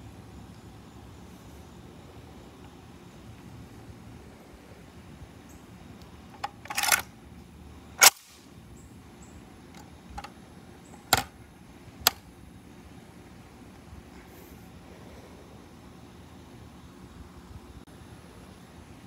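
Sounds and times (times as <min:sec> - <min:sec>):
metal folding stock clacking: 0:06.4 - 0:07.1, 0:08.0 - 0:08.3
metallic rattle: 0:06.4 - 0:07.1.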